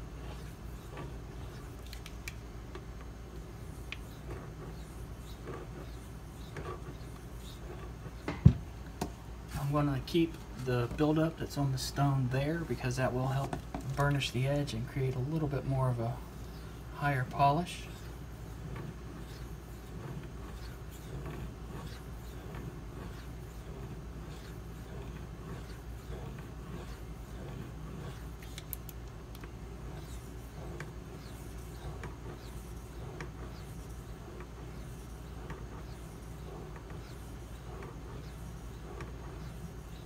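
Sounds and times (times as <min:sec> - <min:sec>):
steady low hum: 0:00.0 - 0:40.0
knife scraping on whetstone: 0:18.8 - 0:28.7.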